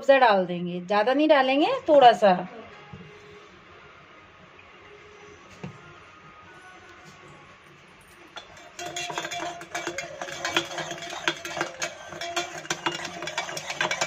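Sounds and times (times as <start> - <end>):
spoon clinking in metal tumbler: 8.3 - 14.0.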